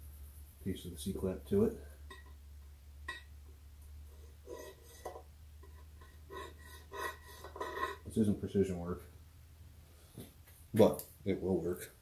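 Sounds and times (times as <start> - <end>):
low steady hum: 0.0 - 12.0
screwdriver scraping sheet metal: 4.4 - 8.1.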